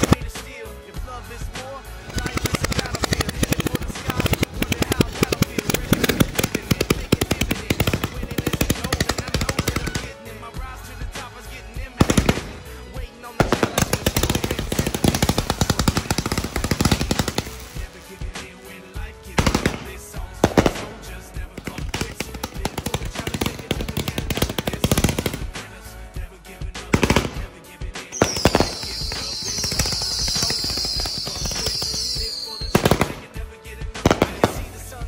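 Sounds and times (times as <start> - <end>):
fireworks crackling hiss: 28.2 - 32.7
fireworks launch thumps and pops: 28.2 - 33.2.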